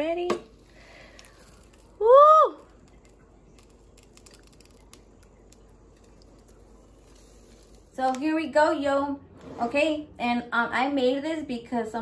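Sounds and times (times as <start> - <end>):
woman shouting woo: 2.0 - 2.6.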